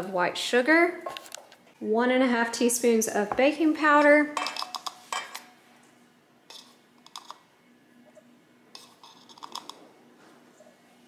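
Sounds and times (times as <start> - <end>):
measuring spoon scraping metal bowl: 6.5 - 7.4, 8.7 - 9.8.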